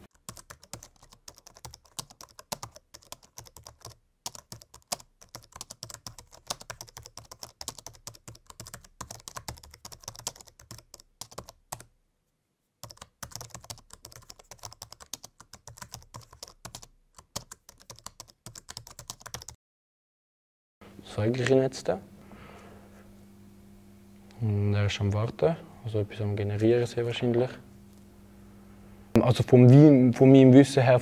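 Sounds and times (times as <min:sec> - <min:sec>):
fast typing on keyboard: 0:00.1 - 0:11.9, 0:12.8 - 0:19.6.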